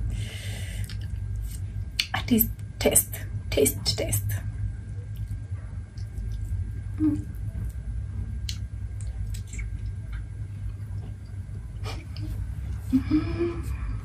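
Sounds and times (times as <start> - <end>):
steady low hum: 0.0 - 14.0
mouth clicks and smacks: 8.4 - 10.3.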